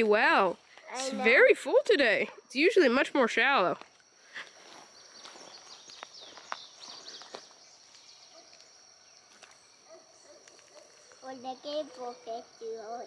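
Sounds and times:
high insect drone: 0:00.0 - 0:13.0
faint bird chirps: 0:04.8 - 0:13.0.

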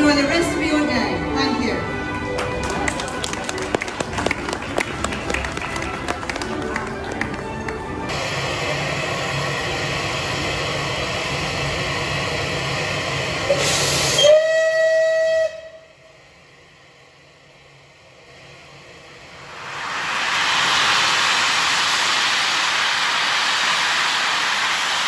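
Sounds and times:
steam locomotive hissing steam: 0:05.1 - 0:25.0
steam whistle blast: 0:13.5 - 0:16.2.

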